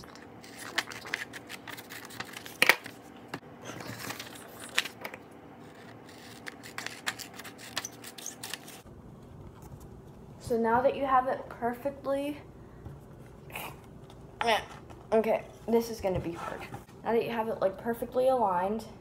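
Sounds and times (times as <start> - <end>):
paper rustling: 0.4 - 8.8.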